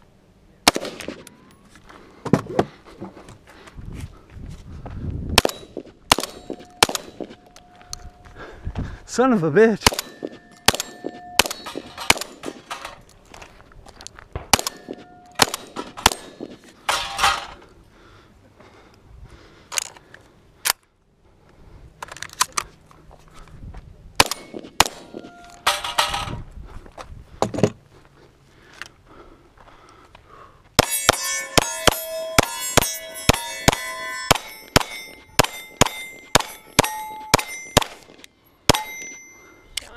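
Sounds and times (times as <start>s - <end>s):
shotgun shots: 0.6s - 1.3s, 5.4s - 7.4s, 9.8s - 12.7s, 14.4s - 16.6s, 24.2s - 25.3s, 30.8s - 39.1s
steel plate ringing: 5.4s - 7.4s, 9.9s - 13.0s, 14.6s - 17.5s, 24.3s - 26.2s, 30.8s - 39.7s.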